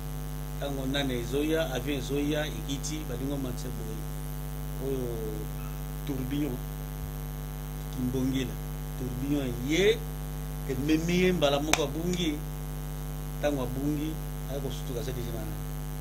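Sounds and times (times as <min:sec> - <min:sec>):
electrical mains hum: 0:00.0 - 0:16.0
man's voice: 0:00.6 - 0:04.0, 0:04.8 - 0:05.5, 0:06.1 - 0:06.6, 0:07.9 - 0:10.0, 0:10.7 - 0:12.4, 0:13.4 - 0:15.6.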